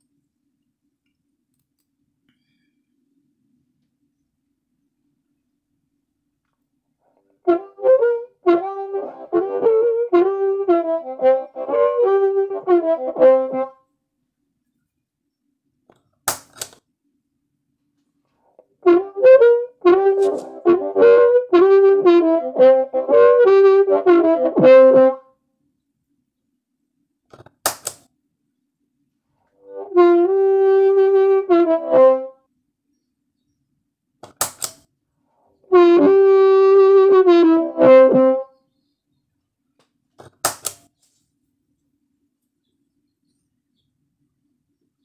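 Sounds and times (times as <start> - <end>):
amplified harmonica playing: 7.5 - 13.7, 18.8 - 25.2, 29.6 - 32.3, 35.7 - 38.4
pedal footswitch clicks: 34.2 - 34.8.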